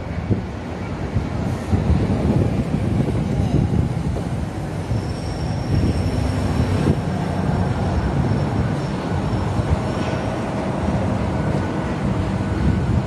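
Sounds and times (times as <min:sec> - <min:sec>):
low rumble of heavy vehicles: 0:00.0 - 0:13.0.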